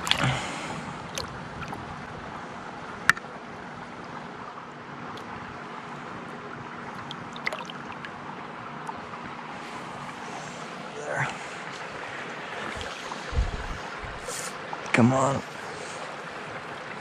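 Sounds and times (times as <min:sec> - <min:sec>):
water splashing: 0:00.0 - 0:02.3, 0:06.7 - 0:17.0
low hiss of water and wind: 0:00.0 - 0:17.0.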